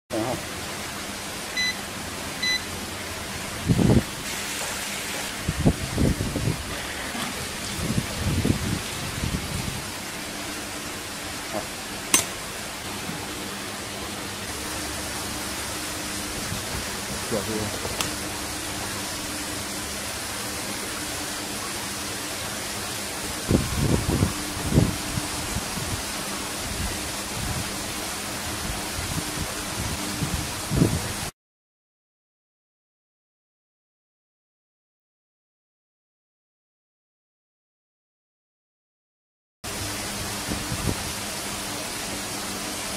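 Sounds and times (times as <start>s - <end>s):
short electronic beep: 1.6s - 1.8s, 2.4s - 2.7s.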